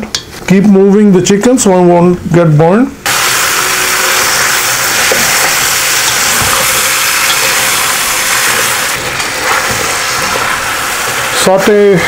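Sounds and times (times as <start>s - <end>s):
chicken sizzling in hot oil: 3.1s - 12.0s.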